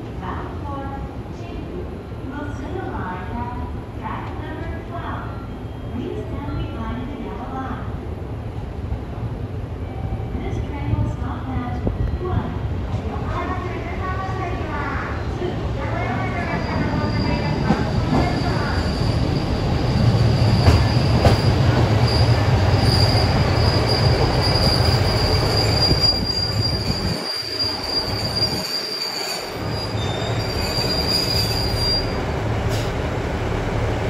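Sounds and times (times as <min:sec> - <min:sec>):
train wheel squeal: 0:16.5 - 0:32.8.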